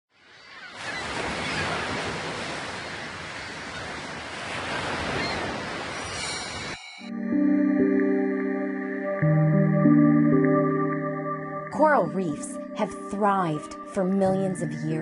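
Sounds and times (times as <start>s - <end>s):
ocean surf washing in: 0.8s - 11.5s.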